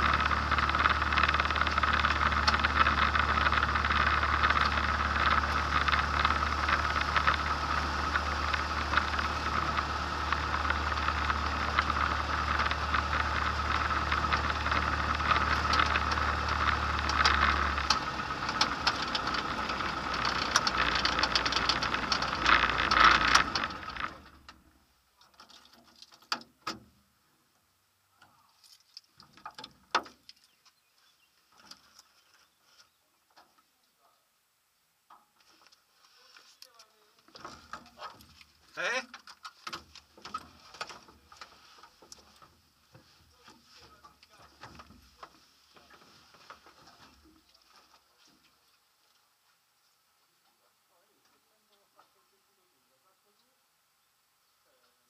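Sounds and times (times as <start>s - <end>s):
propeller engine idling: 0.0s - 24.5s.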